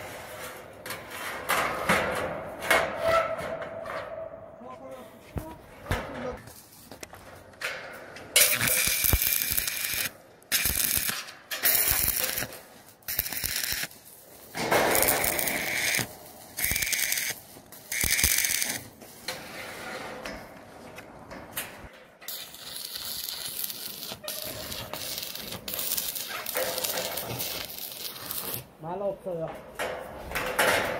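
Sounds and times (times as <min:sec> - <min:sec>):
welding arc crackling and hissing: 0:08.4 - 0:19.3, 0:22.3 - 0:28.8.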